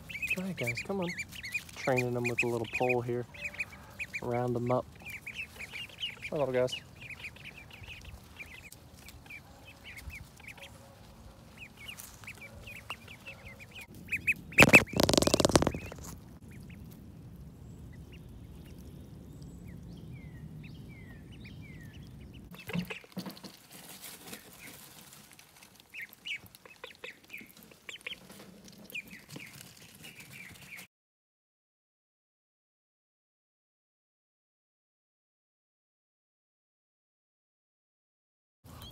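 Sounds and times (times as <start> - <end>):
ducklings peeping: 0.0 - 30.9.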